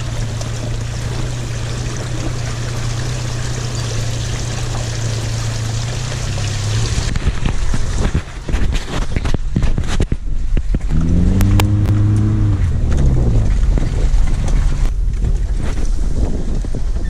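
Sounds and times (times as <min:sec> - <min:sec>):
vehicle body knocking and rattling: 0:00.0 - 0:11.0, 0:12.6 - 0:17.0
suv engine from inside cab: 0:10.4 - 0:17.0.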